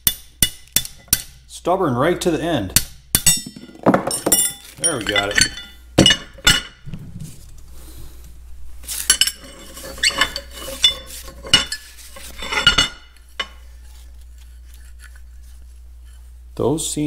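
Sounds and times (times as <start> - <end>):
steady low hum: 0.0 - 17.0
metal parts clinking on workbench: 3.3 - 6.8, 9.0 - 13.6.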